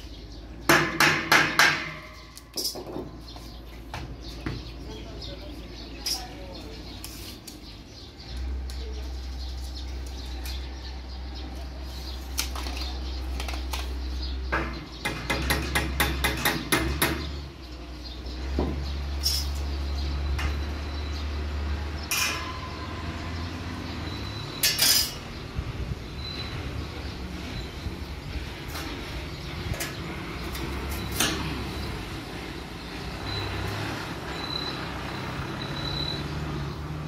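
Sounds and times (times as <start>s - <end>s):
metal clinking and knocking: 0.8s - 3.2s.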